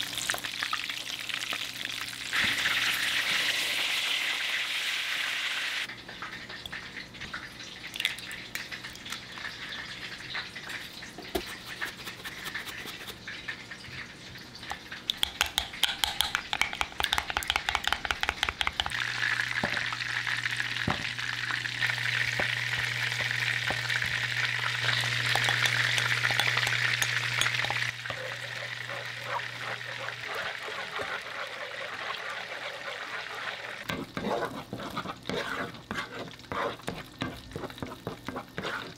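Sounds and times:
food sizzling in a pan: 0:00.0 - 0:05.9, 0:18.9 - 0:38.9
utensil stirring and scraping: 0:10.6 - 0:13.2, 0:15.1 - 0:19.0, 0:22.3 - 0:38.9.

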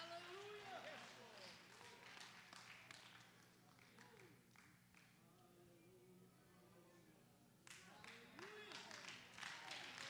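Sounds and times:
faint hand claps: 0:00.2 - 0:05.2, 0:07.6 - 0:10.0.

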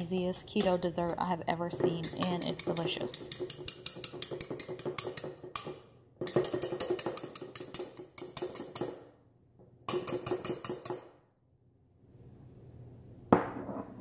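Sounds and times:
whisk scraping metal bowl: 0:00.5 - 0:09.0.

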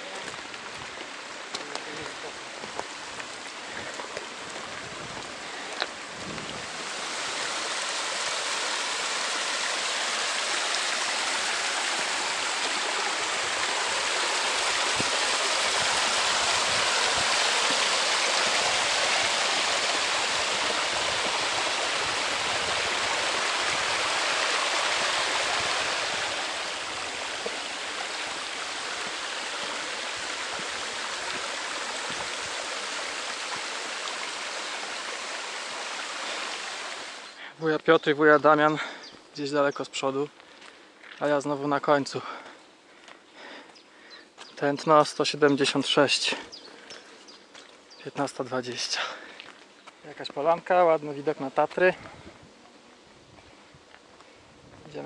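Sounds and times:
stream cascade rushing: 0:00.0 - 0:38.7.

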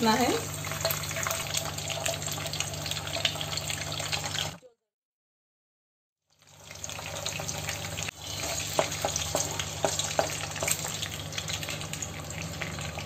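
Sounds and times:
eggs sizzling in oil: 0:00.0 - 0:04.6, 0:06.3 - 0:13.0
wooden spatula knocking pan: 0:08.7 - 0:10.8.

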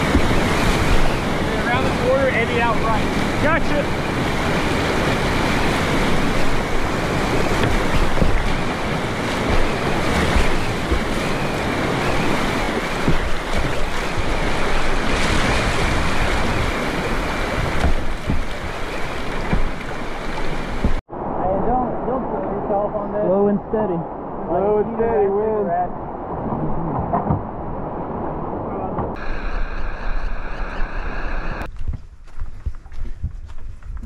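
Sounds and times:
whitewater rapids rushing: 0:00.0 - 0:21.3
wind buffeting microphone: 0:00.0 - 0:22.6, 0:23.8 - 0:34.0.

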